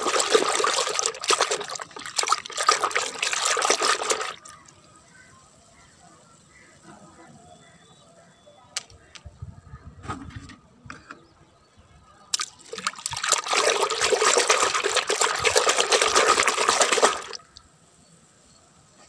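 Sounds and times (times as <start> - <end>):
hand splashing in water: 0.0 - 4.6, 12.3 - 17.5.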